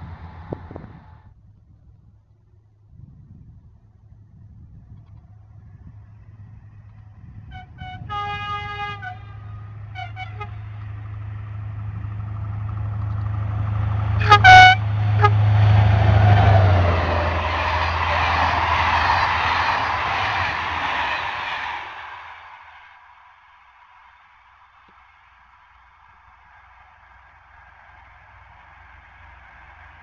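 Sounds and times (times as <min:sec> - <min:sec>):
locomotive engine drone: 0:00.0 - 0:01.4, 0:03.6 - 0:30.0
train horn blasts: 0:07.5 - 0:10.8, 0:14.2 - 0:19.6
train coaches rolling on rails: 0:08.3 - 0:30.0.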